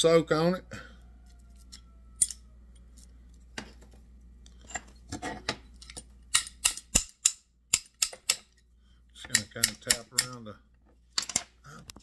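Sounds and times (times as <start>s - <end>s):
small hammer tapping metal: 6.3s - 8.5s, 9.2s - 10.4s.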